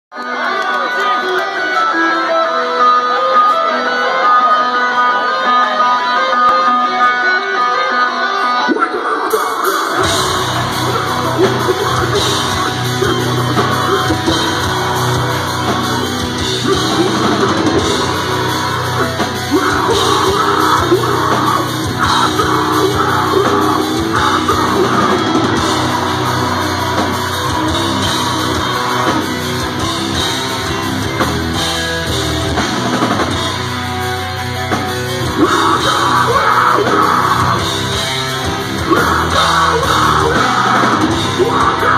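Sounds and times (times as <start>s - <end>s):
distorted electric guitar: 0.1s - 41.9s
drums: 0.1s - 41.9s
bass guitar: 5.9s - 41.9s
screamed vocal: 8.6s - 29.8s, 35.2s - 41.9s.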